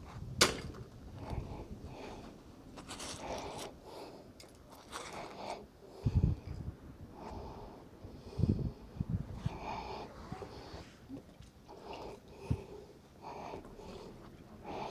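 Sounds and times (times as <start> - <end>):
scraping and rustling of rope: 2.2 - 5.6.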